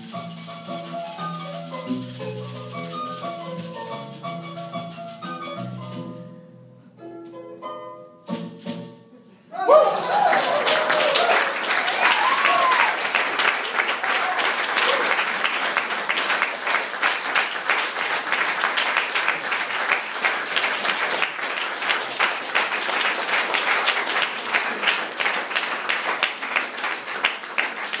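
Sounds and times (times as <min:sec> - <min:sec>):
audience applauding: 0:09.5 - 0:28.0.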